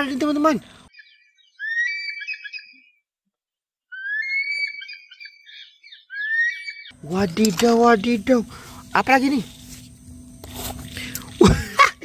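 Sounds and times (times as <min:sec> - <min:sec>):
eagle calling: 0:00.6 - 0:02.9, 0:03.9 - 0:10.2.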